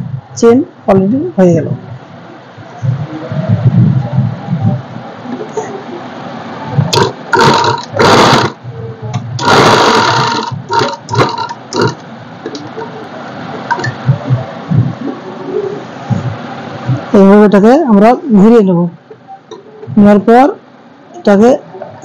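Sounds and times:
sewing machine stitching: 7.0 - 8.6, 9.4 - 11.9.

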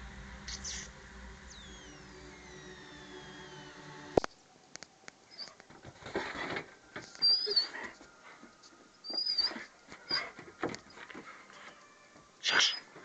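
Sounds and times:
dog whimpering: 7.2 - 8.4, 9.0 - 12.9.

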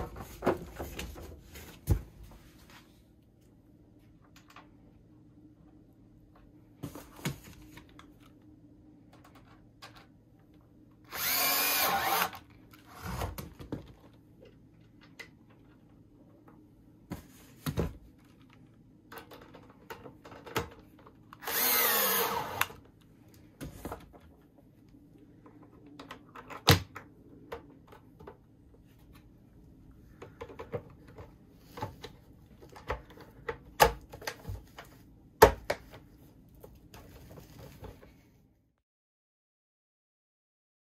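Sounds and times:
cordless drill whirring: 11.1 - 12.4, 21.4 - 22.8.

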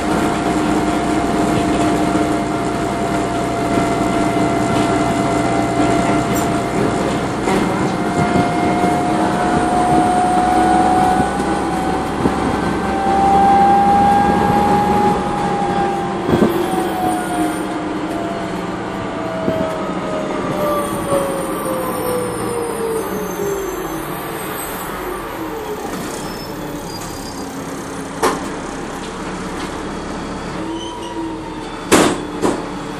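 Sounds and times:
bus transmission whine: 0.0 - 32.9
engine and road noise: 0.0 - 32.9.

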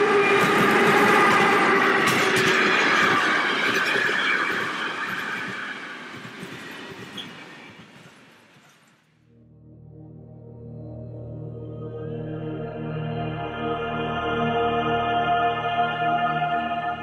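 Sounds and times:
freight train on rails: 0.0 - 9.3.

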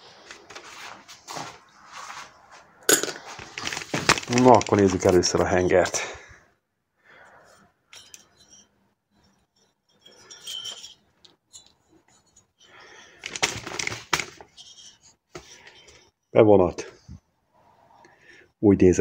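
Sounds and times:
light metallic clinks: 7.9 - 12.3.

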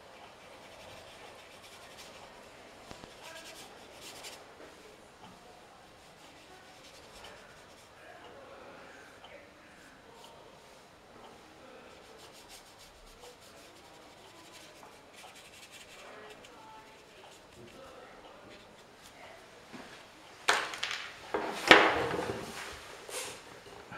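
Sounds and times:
paintbrush rubbing on paper: 0.4 - 4.8, 5.8 - 8.0, 11.9 - 19.2.

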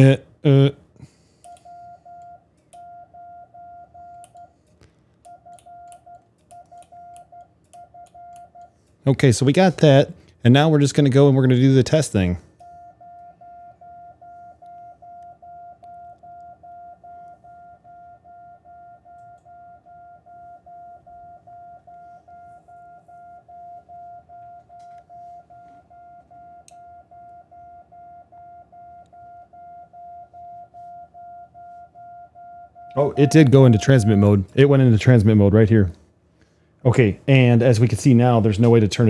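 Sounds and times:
morse code beeps: 1.5 - 4.6, 5.3 - 8.8, 12.6 - 34.4.

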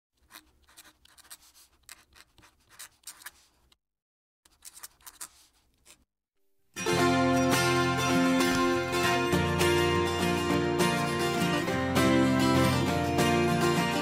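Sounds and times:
pen nib scratching paper: 0.2 - 3.8, 4.5 - 6.1.

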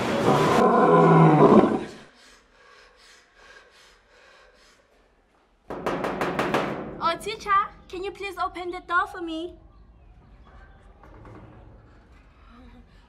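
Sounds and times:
knocking on a door: 5.7 - 7.0.

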